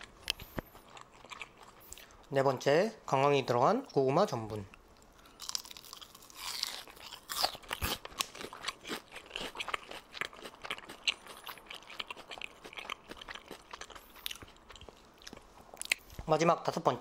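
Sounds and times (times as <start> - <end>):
crunching fried food: 0.0 - 2.1, 5.2 - 16.1.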